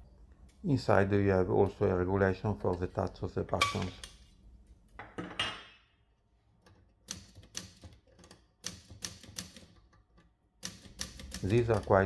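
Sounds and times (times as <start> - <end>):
typewriter keystrokes: 7.0 - 9.8, 10.6 - 12.0.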